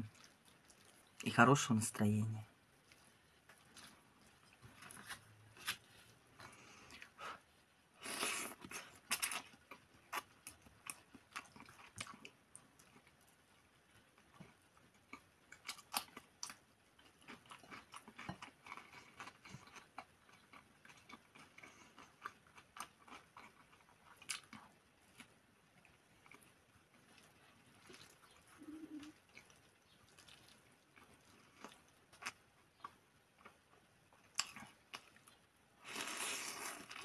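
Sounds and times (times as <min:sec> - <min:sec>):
wet chewing and mouth clicks: 0:00.0 - 0:01.3, 0:08.1 - 0:37.0
slurping noodles: 0:35.9 - 0:37.0.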